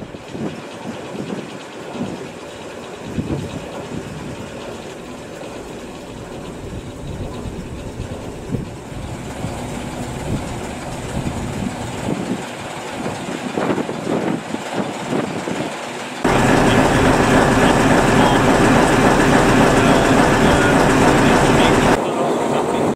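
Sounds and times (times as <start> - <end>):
diesel engine idling: 4.0 - 12.3, 16.3 - 22.9.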